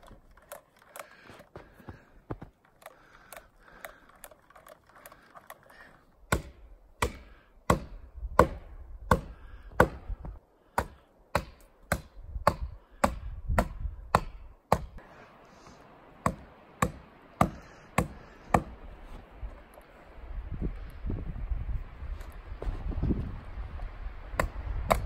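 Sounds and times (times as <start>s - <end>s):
sharp blows on tree: 6.3s - 15.0s.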